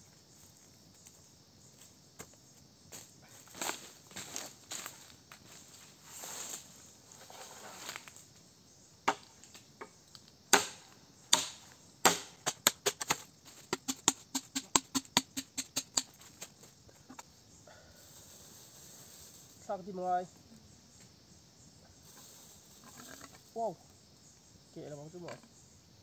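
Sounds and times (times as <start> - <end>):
blade chopping bamboo: 10.5 - 16.1.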